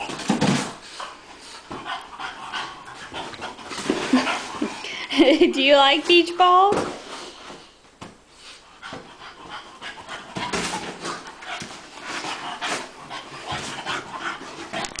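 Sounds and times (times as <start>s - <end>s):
dog panting: 0.9s - 5.1s, 8.4s - 15.0s.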